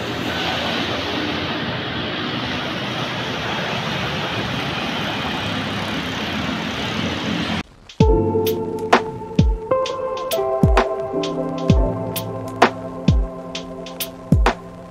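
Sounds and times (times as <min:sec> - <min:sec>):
cars and motorbikes passing: 0:00.0 - 0:07.6.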